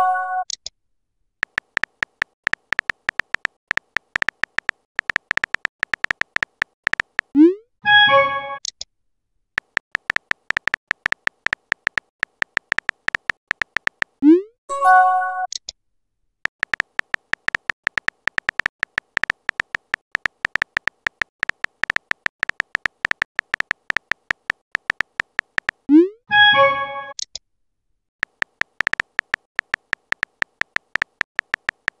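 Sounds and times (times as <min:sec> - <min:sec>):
phone keyboard tapping clicks: 0:01.4 - 0:07.3, 0:09.6 - 0:14.2, 0:16.6 - 0:25.9, 0:28.2 - 0:32.0.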